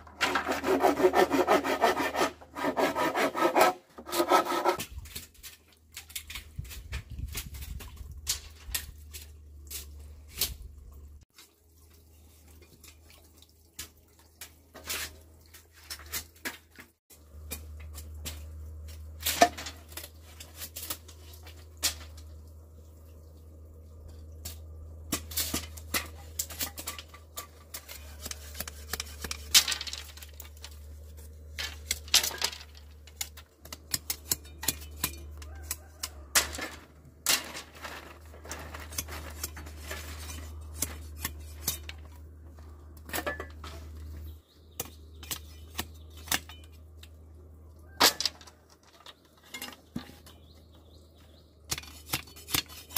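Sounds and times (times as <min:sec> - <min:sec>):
low steady hum: 0:16.6 - 0:52.9.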